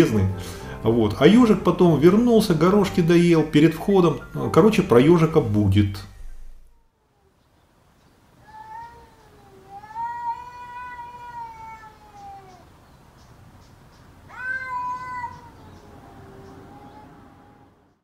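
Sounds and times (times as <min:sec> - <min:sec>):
cat meowing: 0:08.4 - 0:12.7, 0:14.3 - 0:17.8.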